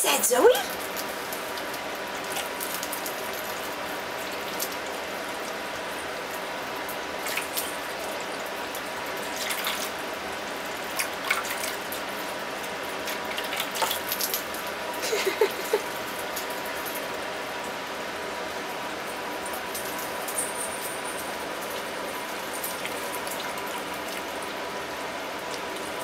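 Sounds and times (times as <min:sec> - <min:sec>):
faint steady hum: 0:00.0 - 0:26.0
water pouring into bowl: 0:00.7 - 0:17.0
dog lapping water: 0:09.2 - 0:10.0, 0:10.9 - 0:11.9, 0:13.0 - 0:15.9.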